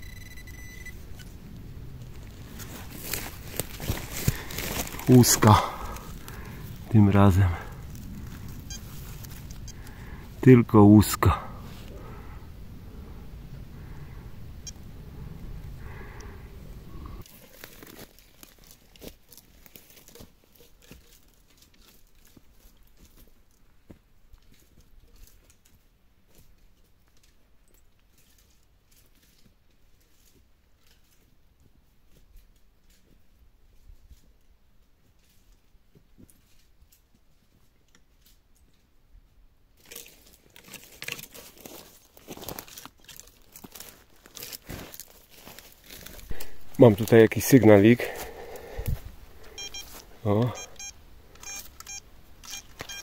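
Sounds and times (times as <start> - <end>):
low rumble: 0.0 - 17.2
dry crackling and rustling: 0.0 - 39.0, 39.7 - 53.0.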